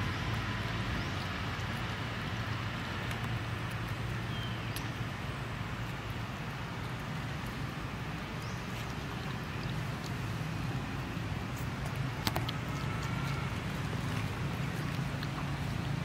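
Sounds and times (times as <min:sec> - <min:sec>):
faint clicks: 0:11.6 - 0:13.8.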